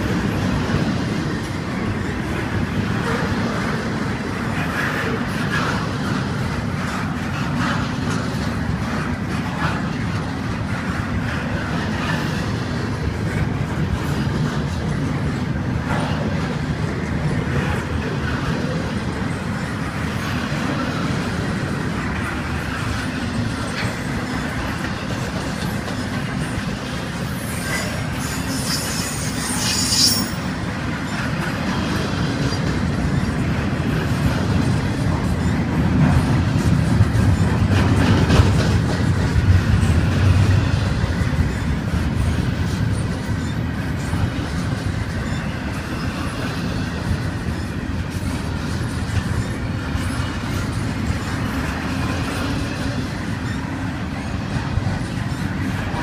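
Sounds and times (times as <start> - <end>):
rail clacks: 0.0 - 56.0
train wheels rumbling on rail: 0.0 - 56.0
high-pitched wheel squeal: 27.4 - 30.6.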